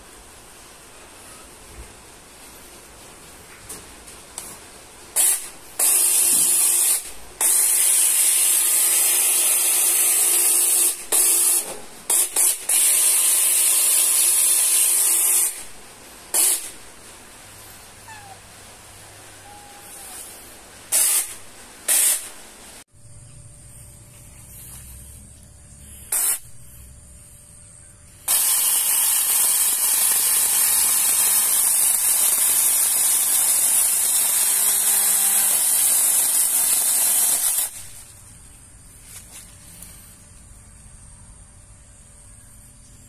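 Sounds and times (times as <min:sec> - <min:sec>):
mini chainsaw motor whining: 0:28.2 - 0:37.8.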